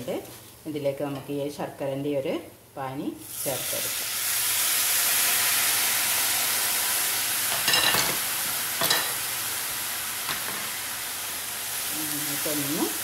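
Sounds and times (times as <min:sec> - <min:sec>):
frying pan sizzling: 0:03.2 - 0:13.0.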